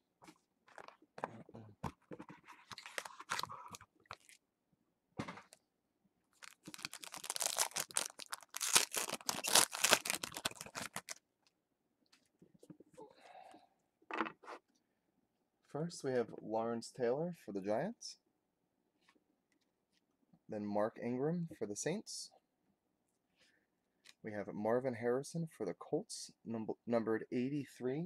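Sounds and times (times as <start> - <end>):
packaging crinkling and tearing: 2.6 - 4.4, 6.4 - 11.2.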